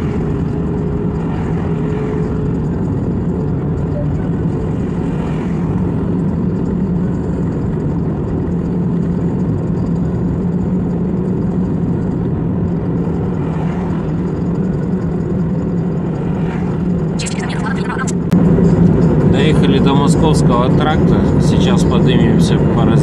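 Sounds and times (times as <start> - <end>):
car engine and tyre noise: 0.0 - 23.0
constant low hum: 0.0 - 23.0.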